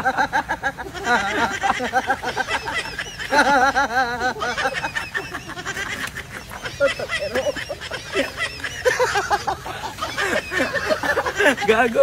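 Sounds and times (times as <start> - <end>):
men laughing hard: 0.0 - 12.0.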